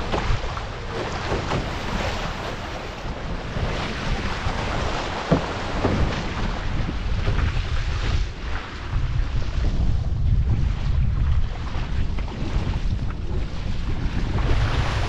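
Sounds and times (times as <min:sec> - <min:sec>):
paddle strokes: 0:00.0 - 0:09.9
water rushing against canoe: 0:00.0 - 0:15.0
wind buffeting microphone: 0:00.0 - 0:15.0.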